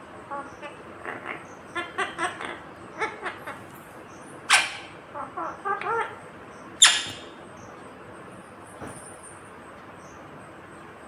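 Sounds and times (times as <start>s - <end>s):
parakeet chattering calls: 0.3s - 7.4s.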